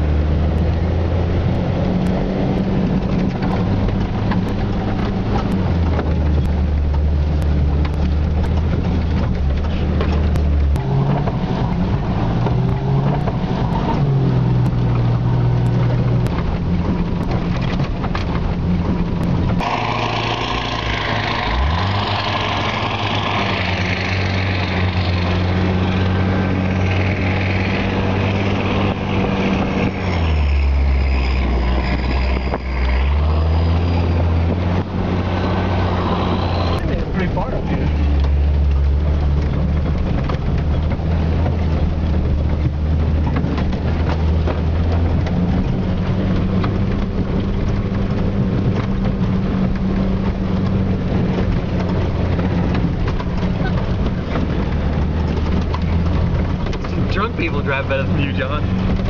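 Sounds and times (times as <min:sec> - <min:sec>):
truck engine running: 0:00.0 - 0:59.0.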